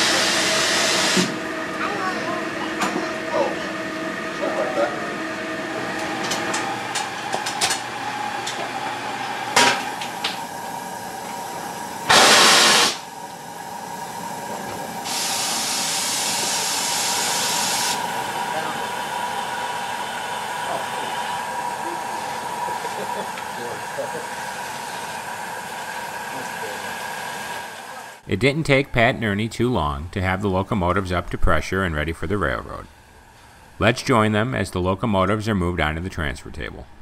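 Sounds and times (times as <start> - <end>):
steam locomotive hissing: 0.0 - 1.5, 8.8 - 28.3.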